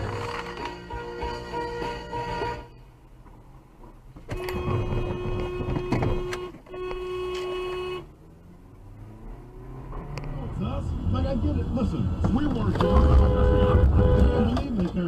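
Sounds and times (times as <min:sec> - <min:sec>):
car horn blasts: 0:00.6 - 0:02.8, 0:04.3 - 0:08.2, 0:12.7 - 0:14.8.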